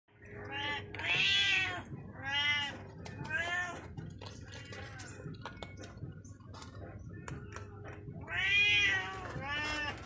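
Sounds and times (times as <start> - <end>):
cat meowing: 0.5 - 3.8, 8.2 - 10.0.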